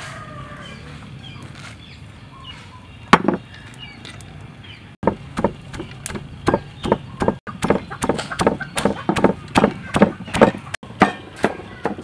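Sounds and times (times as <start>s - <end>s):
wooden pestle pounding in mortar: 5.0s - 12.0s.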